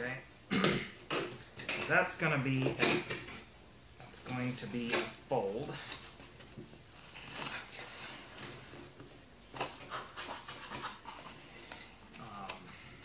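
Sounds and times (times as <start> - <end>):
tool scraping corrugated cardboard: 9.6 - 11.4.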